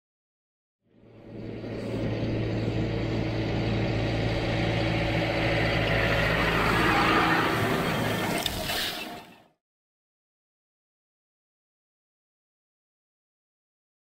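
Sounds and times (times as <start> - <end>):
tractor diesel engine running: 1.0 - 8.6.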